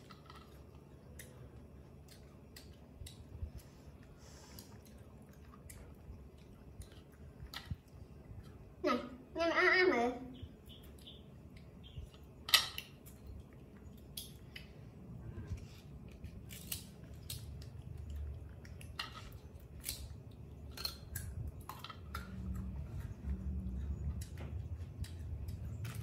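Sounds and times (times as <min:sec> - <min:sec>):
monkey chewing crisp fruit: 0:11.0 - 0:26.0.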